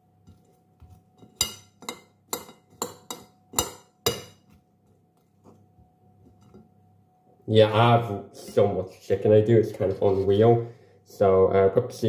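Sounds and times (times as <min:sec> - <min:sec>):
metal spoon clinking against bowl: 0:01.2 - 0:04.4.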